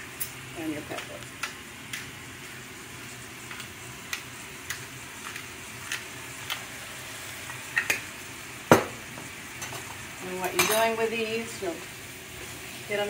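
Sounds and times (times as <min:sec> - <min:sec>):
pepper grinder clicking: 0:03.5 - 0:06.6.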